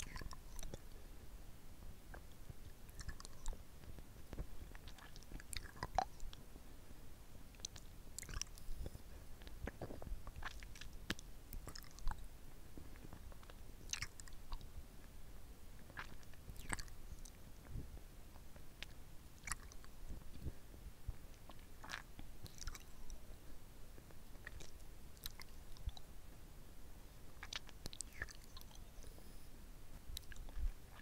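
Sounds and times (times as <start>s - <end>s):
lollipop sucking and lip smacks: 2.9s - 3.6s, 4.4s - 6.4s, 7.6s - 8.9s, 9.6s - 12.2s, 15.9s - 17.4s, 18.8s - 20.0s, 21.5s - 23.1s, 27.4s - 29.1s, 30.1s - 31.0s.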